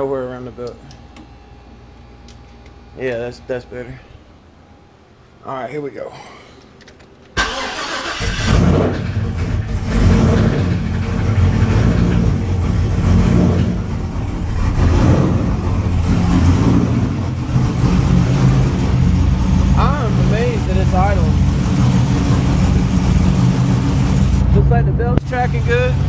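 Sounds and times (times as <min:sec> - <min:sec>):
car engine idling: 0:06.7 - 0:26.0
engine starter cranking: 0:07.4 - 0:12.4.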